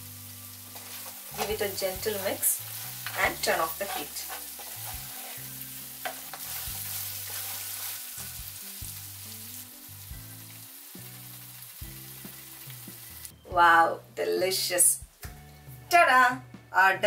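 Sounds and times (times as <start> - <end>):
meat sizzling in a pan: 0.0 - 13.4
wooden spatula stirring: 3.0 - 8.1.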